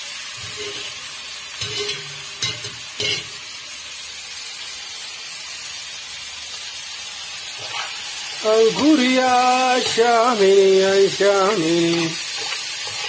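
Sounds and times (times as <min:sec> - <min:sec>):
food sizzling in hot oil: 0:00.0 - 0:13.0
spoon clattering against pan: 0:01.6 - 0:03.3.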